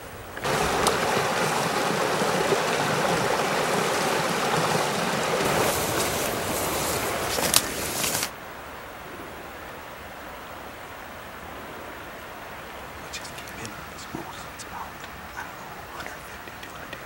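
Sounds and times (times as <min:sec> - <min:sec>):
creek rushing over rocks: 0:00.0 - 0:08.4, 0:12.3 - 0:17.0.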